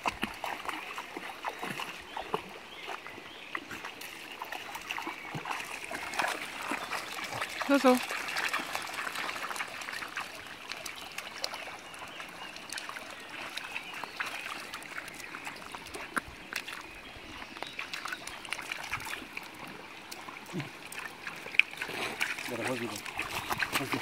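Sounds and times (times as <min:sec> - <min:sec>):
dog wading and splashing: 0:00.0 - 0:24.0
stream trickling over stones: 0:00.0 - 0:24.0.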